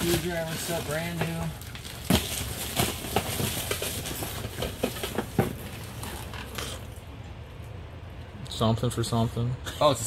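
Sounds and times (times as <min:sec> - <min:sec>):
rustling of boxes and packages: 0:00.0 - 0:07.0.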